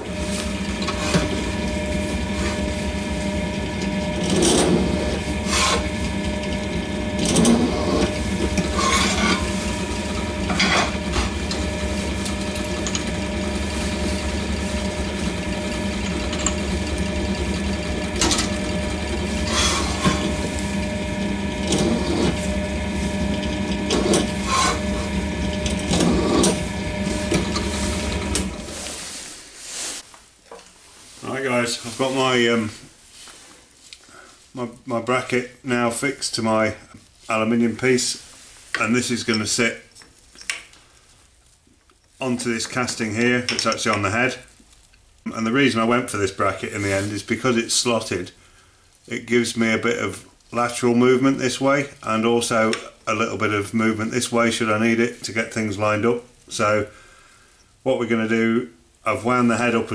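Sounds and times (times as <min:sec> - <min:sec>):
drill bit grinding into metal: 0:00.0 - 0:29.0
drill motor humming: 0:00.0 - 0:29.0.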